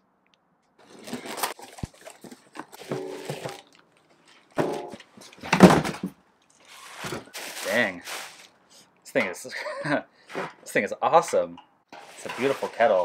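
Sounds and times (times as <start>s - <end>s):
cardboard and plastic rustling: 0.8s - 8.6s, 12.0s - 13.0s.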